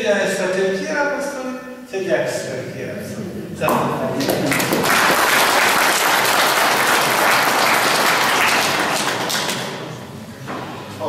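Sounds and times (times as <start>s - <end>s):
audience applauding: 4.2s - 10.0s.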